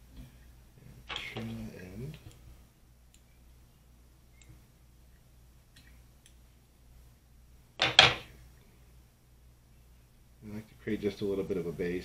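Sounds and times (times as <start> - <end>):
faint small clicks: 3.1 - 3.3, 4.4 - 4.6, 5.7 - 6.4.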